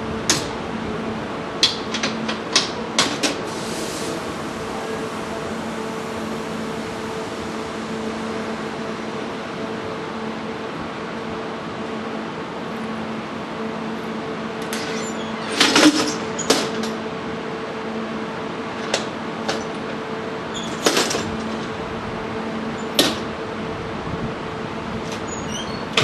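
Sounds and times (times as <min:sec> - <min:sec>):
train door knocks and metal clacks: 0:00.2 - 0:00.8, 0:01.6 - 0:03.5, 0:14.6 - 0:17.0, 0:18.8 - 0:21.8, 0:22.8 - 0:23.4.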